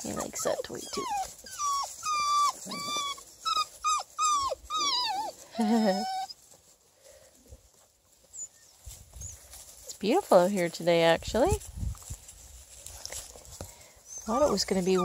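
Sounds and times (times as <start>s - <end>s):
puppies yipping: 0.0s - 6.5s, 14.0s - 15.0s.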